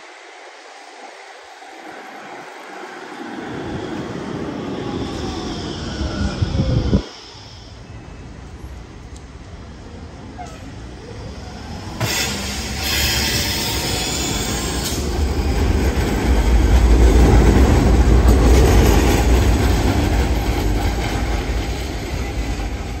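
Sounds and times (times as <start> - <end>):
tram wheels rumbling on rails: 0.0 - 23.0.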